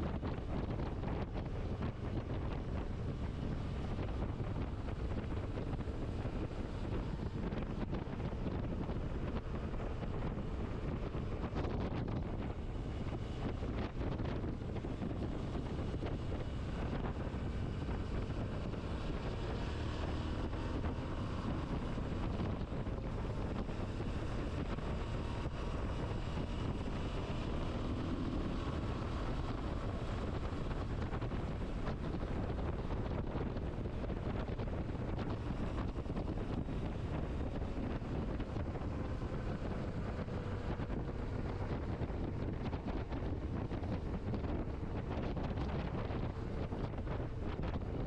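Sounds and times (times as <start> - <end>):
faint motorcycle engine: 0.0 - 48.0
wind noise on microphone: 0.0 - 48.0.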